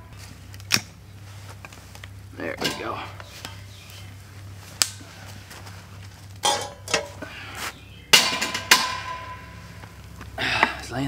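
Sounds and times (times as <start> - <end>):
metal grill grate clanking: 2.5 - 3.6, 6.4 - 7.2, 8.1 - 9.6.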